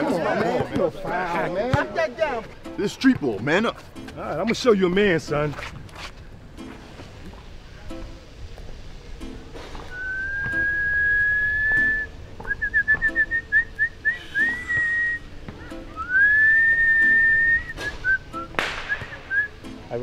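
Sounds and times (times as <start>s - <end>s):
man whistling a tune: 9.9s - 15.3s, 16.0s - 19.6s
sharp smack: 17.8s - 19.3s.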